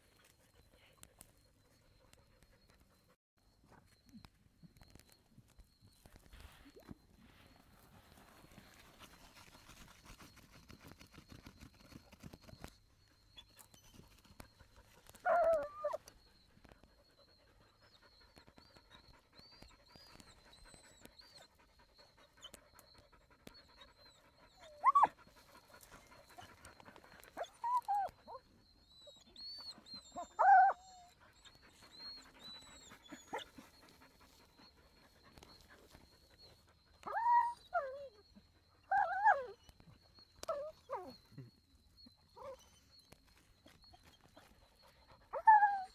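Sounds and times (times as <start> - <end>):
dogs scratching soil: 7.3 - 12.7
dogs panting: 13.7 - 41.8
dogs high whines: 14.5 - 43.0, 43.7 - 45.9.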